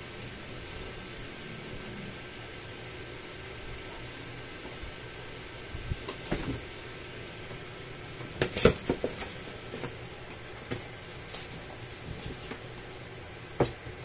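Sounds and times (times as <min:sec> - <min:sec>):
steady background hiss: 0:00.0 - 0:14.0
kittens knocking in cardboard box: 0:08.2 - 0:10.0, 0:13.6 - 0:14.0.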